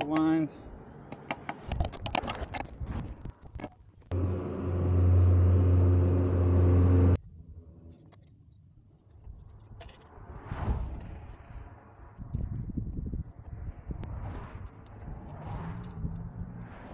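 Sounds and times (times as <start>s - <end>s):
motor humming: 4.1s - 7.2s.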